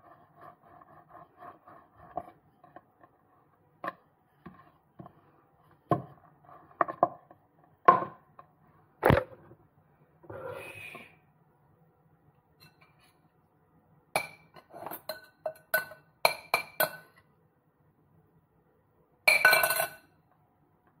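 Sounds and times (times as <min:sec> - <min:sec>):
rolling pin rolling dough: 0:00.0 - 0:07.8.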